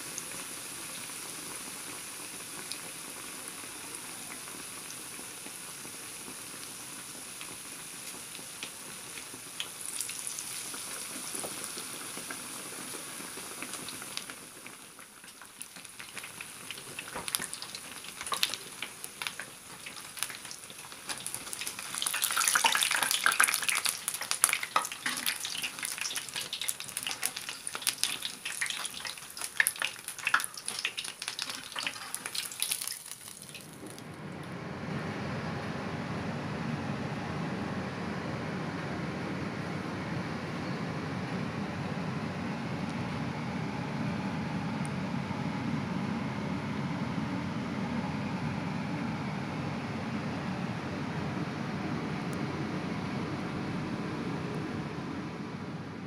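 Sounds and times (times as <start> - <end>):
food sizzling in hot oil: 0.0 - 33.9
oil crackling and popping: 0.0 - 34.0.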